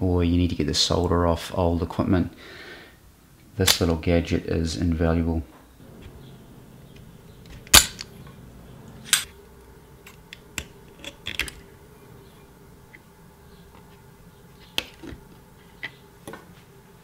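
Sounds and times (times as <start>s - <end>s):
solder sucker snapping: 6.9s - 9.4s
small tools tapping metal: 10.1s - 11.6s.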